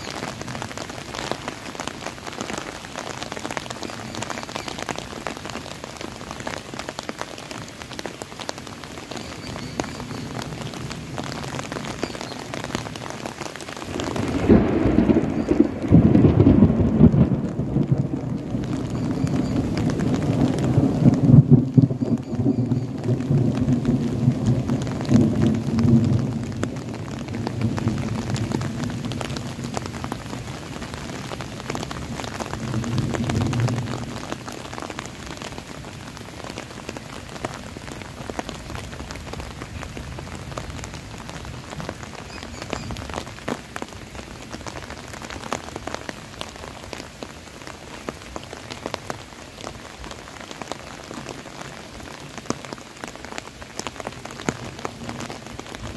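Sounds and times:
steady rain patter: 0.0s - 55.9s
rolling thunder rumble: 13.9s - 34.7s.

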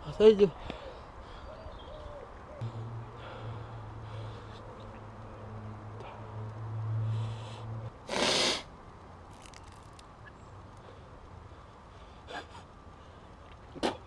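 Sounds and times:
man spitting: 8.1s - 8.7s.

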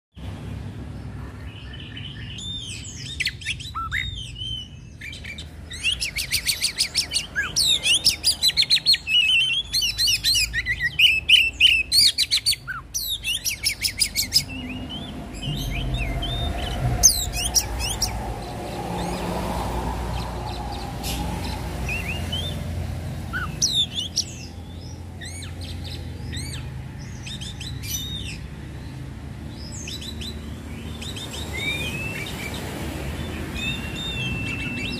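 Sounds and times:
bird singing whistled phrases: 1.9s - 19.2s, 20.2s - 22.6s, 31.0s - 32.6s, 33.3s - 34.9s
low rumble: 14.4s - 23.3s.

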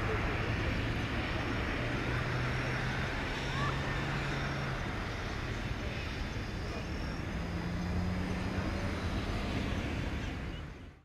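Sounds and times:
jet engines at takeoff power: 0.0s - 11.0s.

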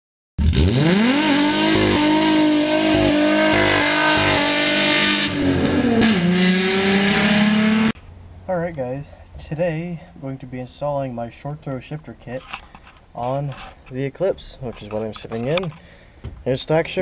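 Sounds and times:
car engine revving: 0.4s - 8.0s.

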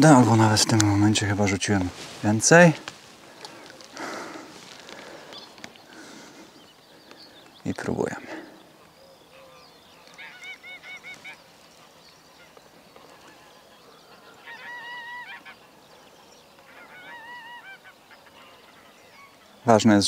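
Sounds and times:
geese honking: 8.8s - 20.0s.

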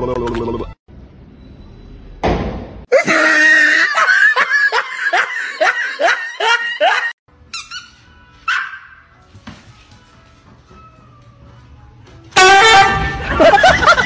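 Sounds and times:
person laughing loudly: 2.9s - 7.2s, 13.1s - 14.0s.

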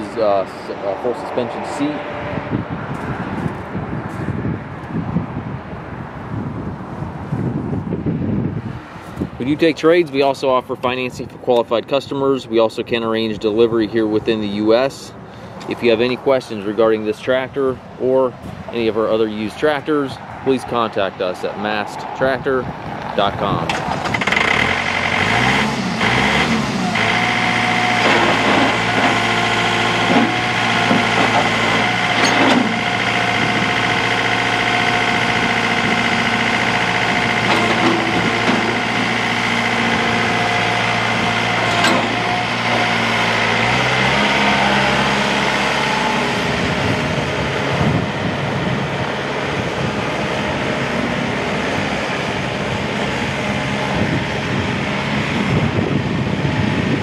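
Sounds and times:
high whine: 18.4s - 57.0s
tractor diesel engine running: 21.8s - 57.0s.

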